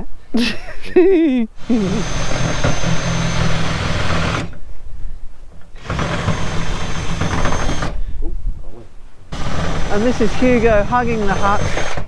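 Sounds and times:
cordless drill whining on metal: 0:01.6 - 0:04.6, 0:05.8 - 0:08.0, 0:09.3 - 0:12.0.

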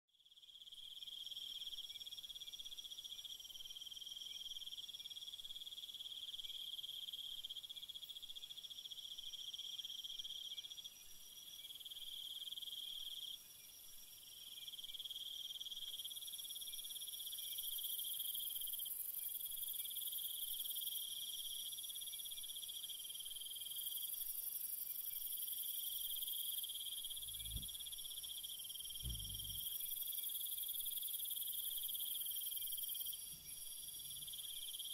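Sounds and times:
insects trilling: 0:14.7 - 0:34.9
dull low thumps: 0:27.2 - 0:27.9, 0:29.0 - 0:29.6.

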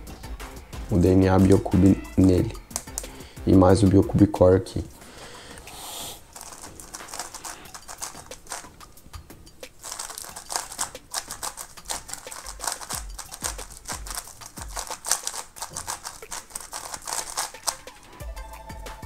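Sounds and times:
background music: 0:00.0 - 0:19.0
puzzle cube clicking: 0:01.4 - 0:03.2, 0:06.3 - 0:09.0, 0:09.7 - 0:17.9.

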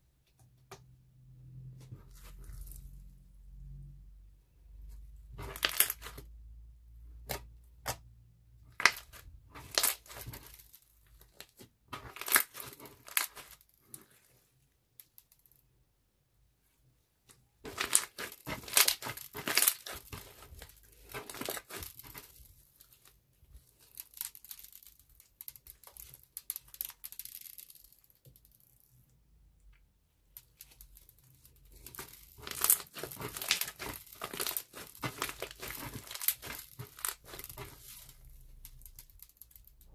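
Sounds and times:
slime crackling and popping: 0:05.3 - 0:06.3, 0:08.7 - 0:14.2, 0:17.6 - 0:29.0, 0:30.4 - 0:39.9.

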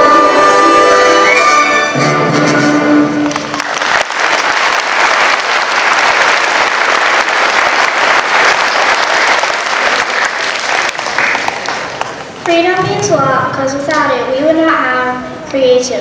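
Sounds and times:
audience applauding: 0:03.2 - 0:12.4.

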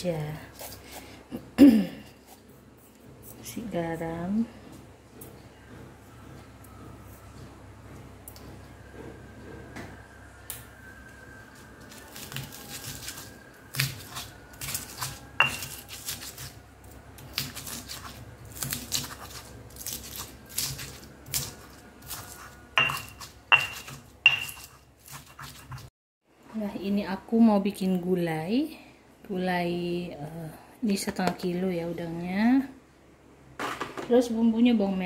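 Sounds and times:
stone pestle pounding in mortar: 0:13.7 - 0:16.5, 0:17.3 - 0:25.9
stone scraping on stone: 0:22.0 - 0:25.9.

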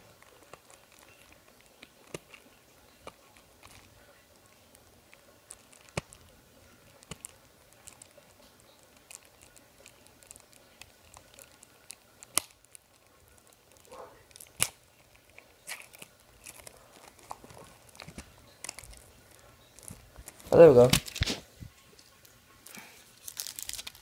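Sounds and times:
packaging crinkling and tearing: 0:00.0 - 0:24.0
sharp plastic snaps: 0:09.0 - 0:12.9, 0:13.8 - 0:19.0.

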